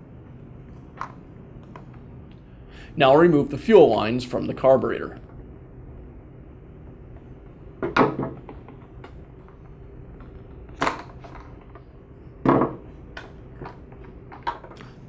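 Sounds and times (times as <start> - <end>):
low steady hum: 0.0 - 15.0
handling clicks and knocks: 7.8 - 15.0.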